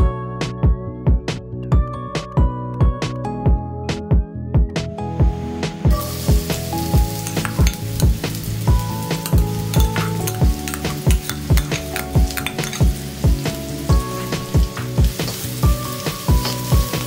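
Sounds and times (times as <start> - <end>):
music with steady drum beat: 5.6 - 17.0
onion sizzling in hot oil: 6.0 - 17.0.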